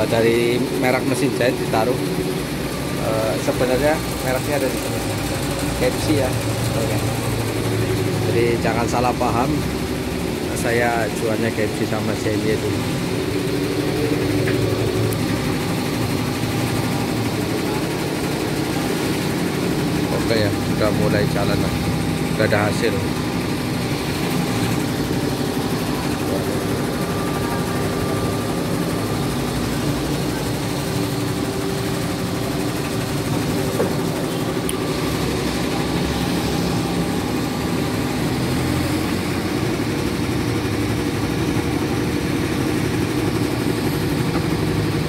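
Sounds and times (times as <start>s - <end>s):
embroidery machine stitching: 0.0s - 45.0s.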